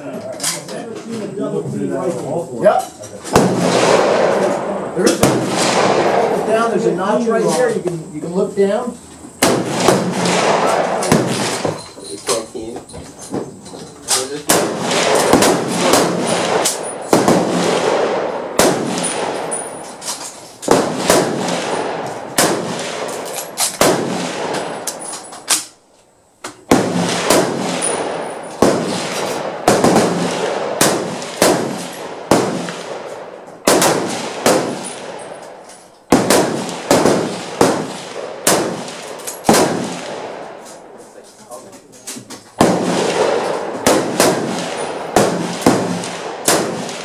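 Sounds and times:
rifle shots with echo: 3.3s - 7.5s, 9.4s - 11.8s, 14.4s - 20.0s, 20.7s - 25.8s, 26.7s - 41.0s, 42.6s - 47.0s.

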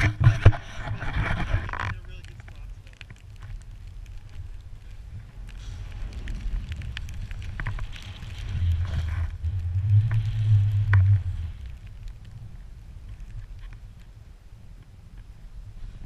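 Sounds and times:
wind buffeting microphone: 0.0s - 16.0s
skis running through snow: 3.6s - 12.2s
snow spraying hiss: 4.8s - 12.5s.

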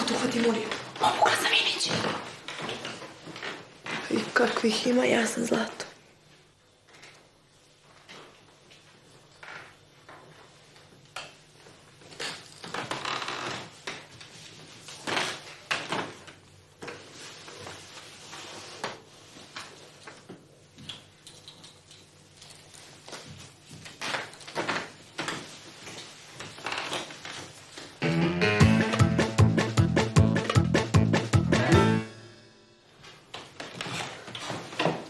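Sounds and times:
rustling and handling noises: 0.0s - 28.0s, 33.0s - 35.0s.

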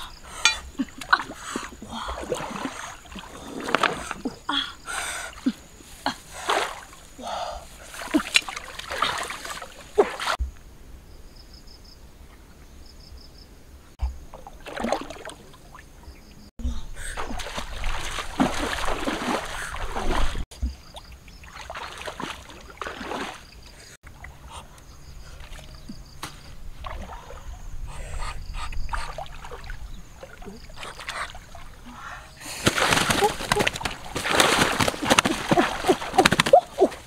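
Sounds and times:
water splashing in stream: 0.0s - 4.4s, 6.2s - 7.1s, 7.8s - 10.4s, 14.0s - 16.0s, 17.0s - 24.5s, 25.4s - 27.5s, 28.9s - 31.9s, 32.5s - 37.0s.

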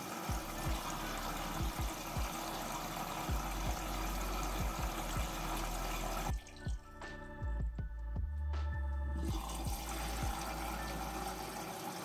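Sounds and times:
washing machine water rushing: 0.0s - 6.5s, 9.2s - 12.0s.

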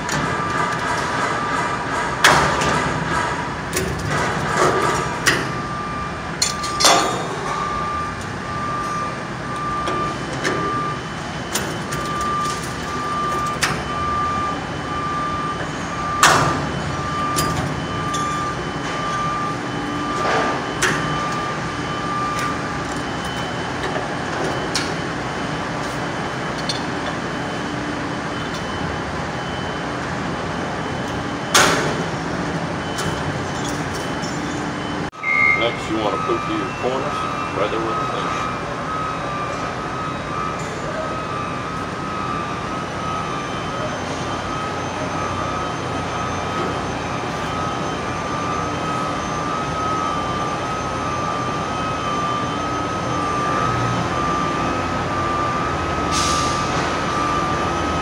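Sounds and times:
electronic beep: 24.5s - 58.0s.

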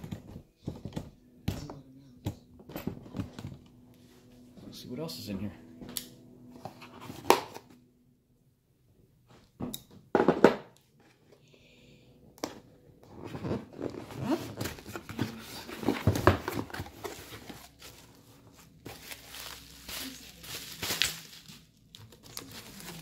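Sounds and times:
cardboard scraping and rustling: 13.1s - 23.0s.

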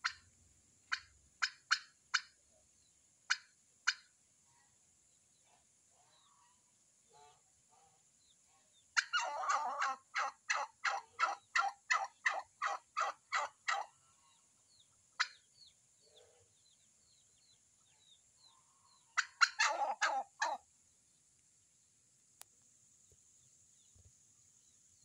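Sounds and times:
turkey hen calling: 0.0s - 2.4s, 3.3s - 4.1s, 6.0s - 7.9s, 8.8s - 16.5s, 17.4s - 20.6s.

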